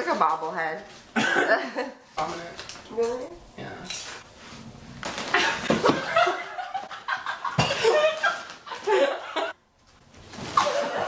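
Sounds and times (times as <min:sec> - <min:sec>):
young people laughing: 0:05.4 - 0:09.6, 0:10.6 - 0:11.0.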